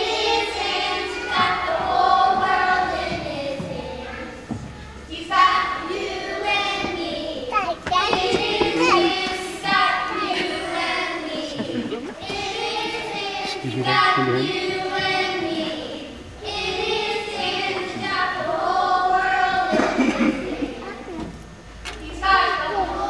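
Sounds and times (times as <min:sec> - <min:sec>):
children singing: 0:00.0 - 0:21.2, 0:22.0 - 0:23.0.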